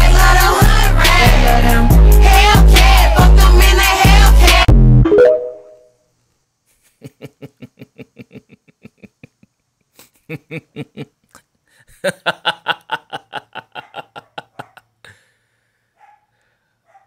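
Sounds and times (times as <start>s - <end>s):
person laughing: 6.8s - 14.9s.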